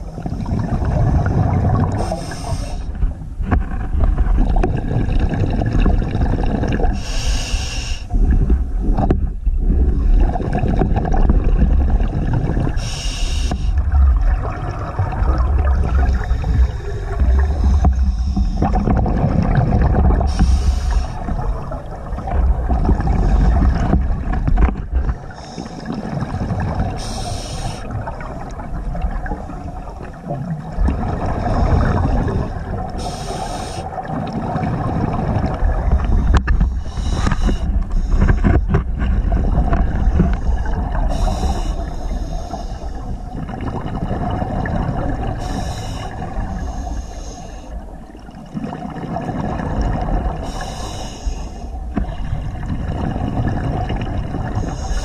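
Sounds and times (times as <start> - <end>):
underwater bubbling rumble: 0.0 - 55.0
regulator inhale hissing: 2.0 - 3.0, 7.0 - 8.2, 12.8 - 13.8, 16.3 - 18.8, 20.3 - 21.2, 25.2 - 25.9, 27.0 - 27.9, 31.4 - 34.0, 35.9 - 38.5, 40.3 - 43.1, 45.4 - 47.8, 50.4 - 51.8, 54.6 - 55.0.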